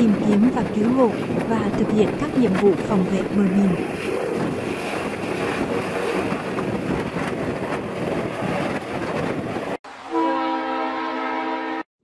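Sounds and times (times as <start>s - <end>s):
wind on microphone: 0.0s - 9.8s
helicopter rotor and turbine: 0.1s - 9.8s
loud train horn: 10.0s - 11.9s.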